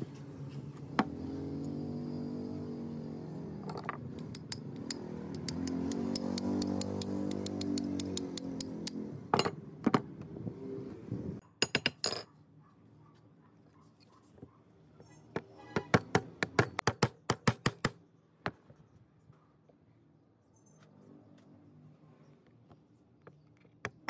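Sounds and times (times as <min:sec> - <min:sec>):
metallic knocks and clinks: 0:11.6 - 0:12.4.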